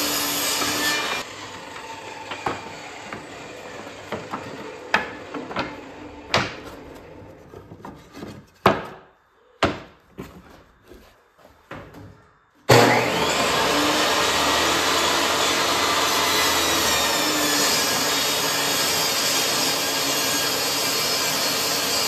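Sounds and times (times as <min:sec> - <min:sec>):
table saw winding down: 0:00.0 - 0:06.4, 0:12.7 - 0:22.0
wooden slats knocking: 0:04.1 - 0:06.8, 0:07.6 - 0:10.0.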